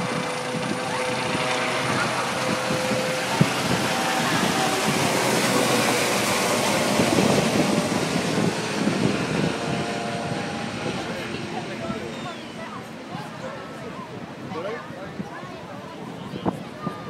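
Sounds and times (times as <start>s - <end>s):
helicopter flying overhead: 0.0s - 17.0s.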